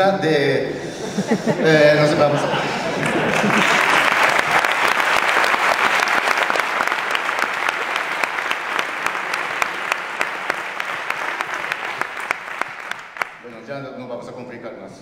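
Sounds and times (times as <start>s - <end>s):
audience applauding: 2.2s - 13.5s.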